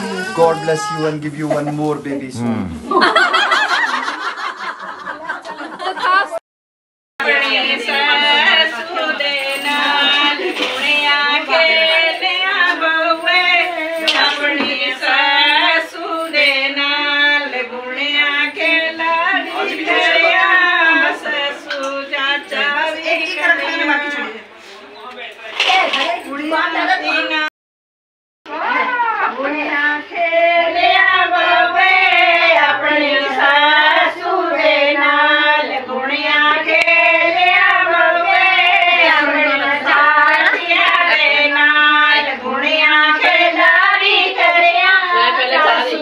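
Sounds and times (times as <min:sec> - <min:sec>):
women singing: 0:07.2 - 0:24.5, 0:25.6 - 0:27.5, 0:28.5 - 0:46.0.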